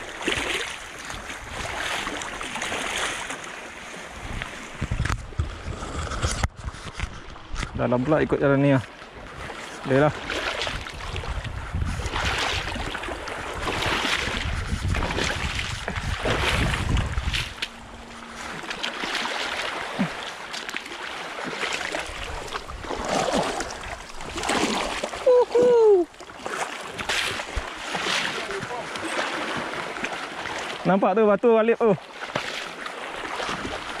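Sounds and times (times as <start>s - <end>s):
wading through water splashing: 0.0s - 7.5s, 8.8s - 31.0s, 31.8s - 34.0s
wind buffeting microphone: 4.1s - 8.4s, 9.2s - 20.3s, 21.9s - 26.2s.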